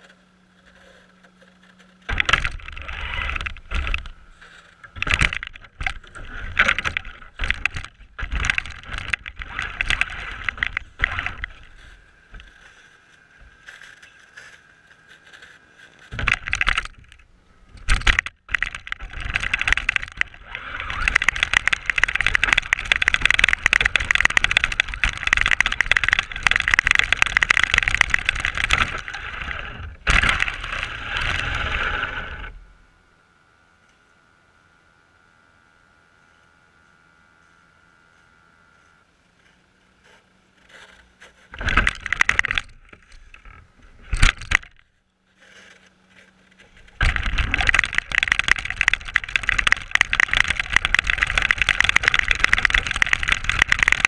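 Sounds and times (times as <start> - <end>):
rc car motor whining: 2.0 - 12.8, 13.5 - 39.1.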